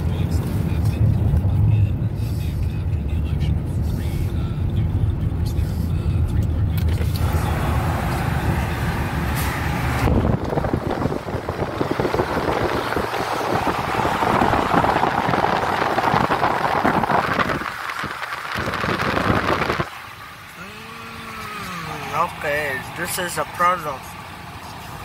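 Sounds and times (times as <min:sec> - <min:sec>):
road and wind rush: 0:00.0 - 0:25.0
wind buffeting microphone: 0:09.7 - 0:19.9.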